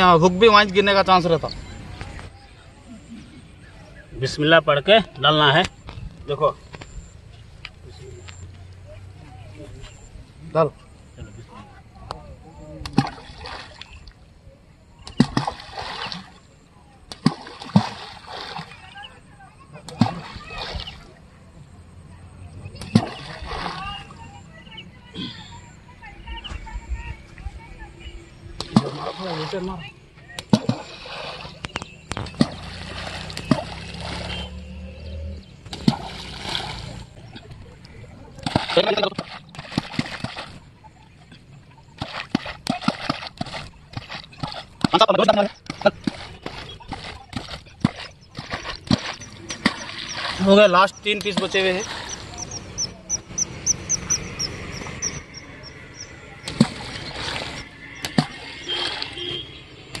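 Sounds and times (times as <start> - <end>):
balls splashing into river: 12.0 - 14.3, 15.0 - 21.3, 21.9 - 24.4, 28.6 - 34.9, 35.6 - 60.0
bird chirping: 14.9 - 15.4, 22.4 - 28.6, 31.3 - 35.7, 43.6 - 60.0
groundbait splashing into water: 15.0 - 16.4, 17.1 - 18.8, 22.8 - 24.0, 30.3 - 34.5, 35.7 - 37.1, 38.4 - 40.6, 45.6 - 50.5, 56.4 - 60.0.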